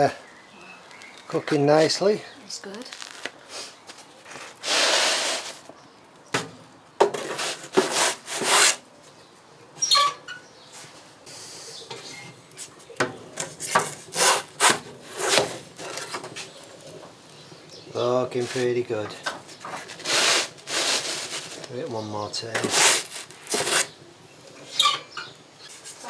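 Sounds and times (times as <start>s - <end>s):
pizza peel scraping on stone: 7.2s - 8.8s, 13.6s - 16.6s, 19.7s - 21.7s, 22.5s - 24.0s.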